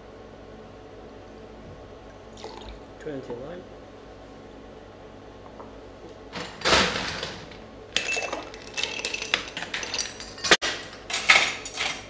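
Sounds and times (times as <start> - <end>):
ice cubes clinking in a glass: 8.0 - 10.5.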